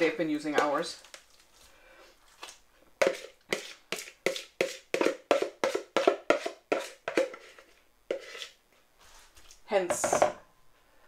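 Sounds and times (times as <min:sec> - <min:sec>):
spoon tapping plastic bowl: 0:03.0 - 0:07.4.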